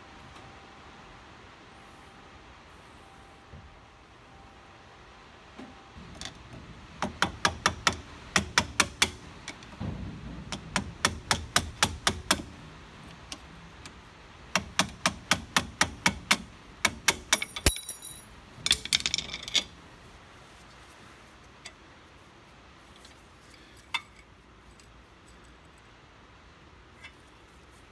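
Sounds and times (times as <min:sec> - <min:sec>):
metallic clink: 0:17.3 - 0:19.7.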